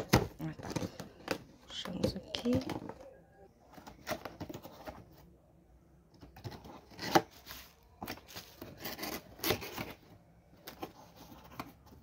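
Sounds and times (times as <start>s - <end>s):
cardboard scraping and rubbing: 6.4s - 12.0s.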